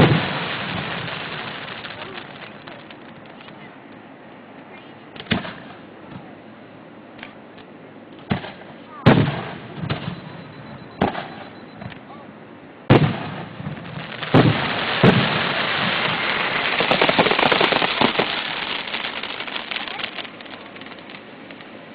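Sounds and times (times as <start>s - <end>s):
firework bangs: 0.0s - 3.9s, 4.7s - 6.3s, 8.2s - 12.0s, 12.9s - 21.9s
firework crackling: 0.0s - 6.0s, 8.2s - 12.0s, 12.9s - 21.9s.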